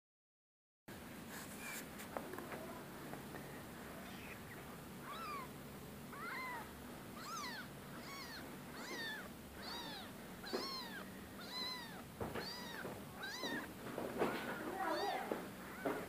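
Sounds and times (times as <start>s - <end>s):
kitten meowing: 4.0s - 13.7s, 14.7s - 16.0s.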